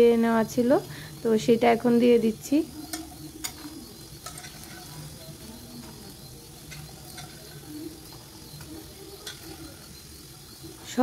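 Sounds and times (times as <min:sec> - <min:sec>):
faint sizzling in pan: 0:00.0 - 0:11.0
peas dropping into pan: 0:02.9 - 0:05.2.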